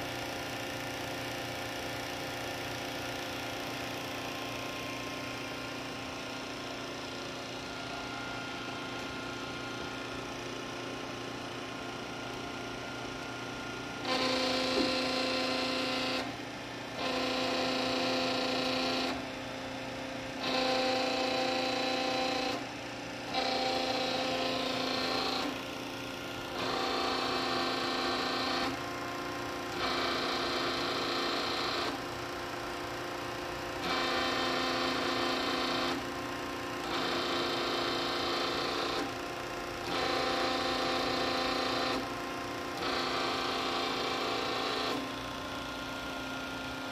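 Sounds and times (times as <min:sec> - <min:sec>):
hydraulic system hum: 0:01.7 - 0:19.3
pitched hydraulic whine: 0:13.6 - 0:16.3.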